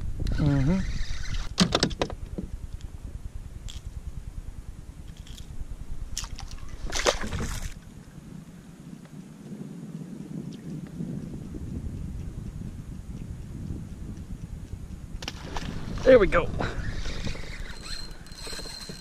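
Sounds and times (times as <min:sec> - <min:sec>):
wind rumble on microphone: 0:00.0 - 0:19.0
water sloshing against a kayak: 0:06.2 - 0:07.9.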